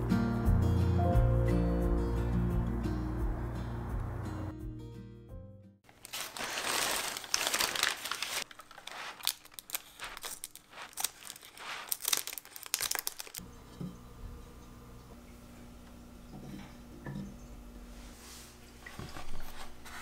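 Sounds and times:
paper and plastic crinkling: 5.8 - 13.4.

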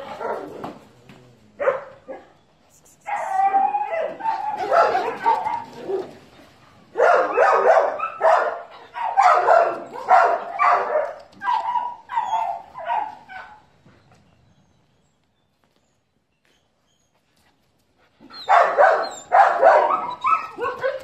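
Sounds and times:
dog barking: 1.6 - 2.3, 4.2 - 6.1, 7.0 - 13.6, 18.5 - 21.0.

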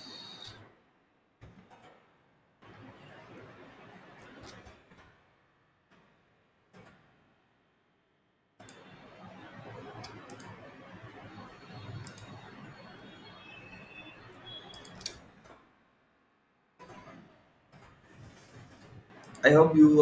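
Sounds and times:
low background noise: 0.0 - 20.0
computer mouse clicks: 4.2 - 4.8, 10.0 - 10.6, 12.0 - 12.4, 14.6 - 15.6, 16.8 - 19.5.

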